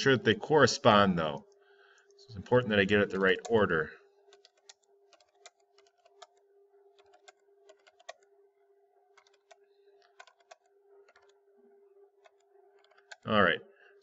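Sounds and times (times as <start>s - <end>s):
faint steady hum: 0.0s - 14.0s
computer keyboard clicking: 4.3s - 8.3s, 9.1s - 11.4s, 12.2s - 13.3s.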